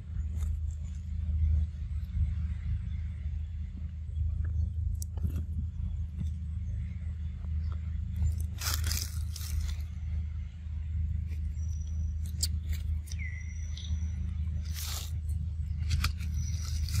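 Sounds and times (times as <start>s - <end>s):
low rumble: 0.0s - 17.0s
dry crackling rustles: 7.7s - 10.0s, 14.5s - 17.0s
thin high whistle-like tone: 11.5s - 14.8s.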